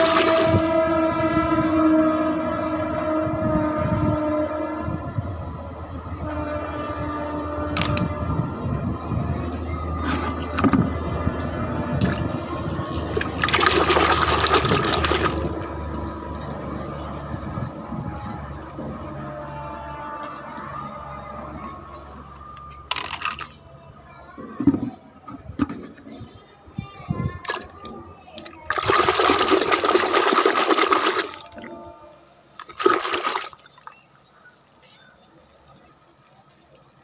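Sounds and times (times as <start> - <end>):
water sloshing in plastic bucket: 0.0 - 0.5, 12.0 - 12.3, 13.1 - 15.6, 28.4 - 31.8, 32.6 - 33.9
hand splashing in water: 13.1 - 15.4, 32.6 - 33.6.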